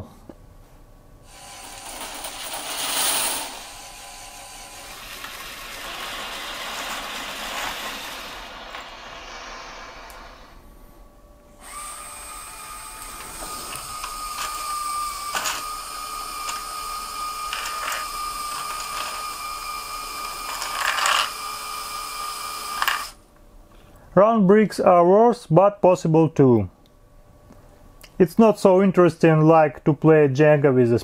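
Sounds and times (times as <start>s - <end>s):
electric motors whining: 1.3s - 10.8s, 11.6s - 23.2s
plastic parts clattering: 15.3s - 15.7s, 20.4s - 21.4s.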